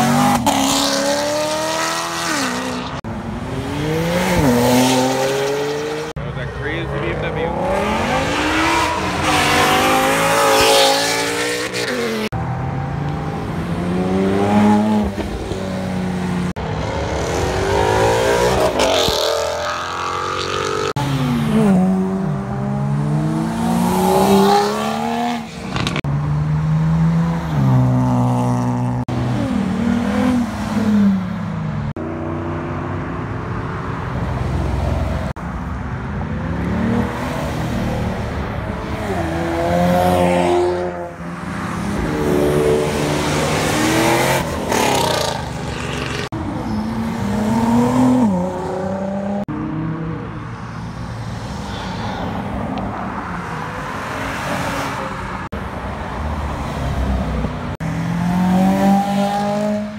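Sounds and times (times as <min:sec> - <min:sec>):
sports cars accelerating hard: 0:00.0 - 0:33.7, 0:56.1 - 0:59.9.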